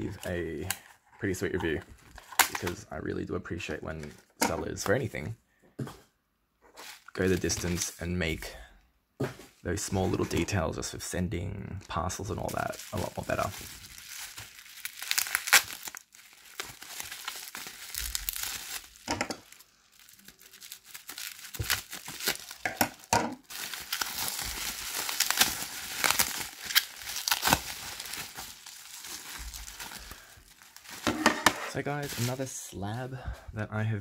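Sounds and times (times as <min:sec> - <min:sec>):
bubble wrap crinkling: 0:11.9 - 0:32.8.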